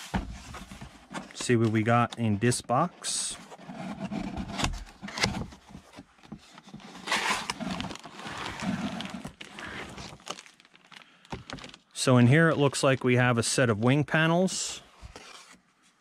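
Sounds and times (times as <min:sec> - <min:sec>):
cardboard scraping on cardboard: 0:03.4 - 0:10.2.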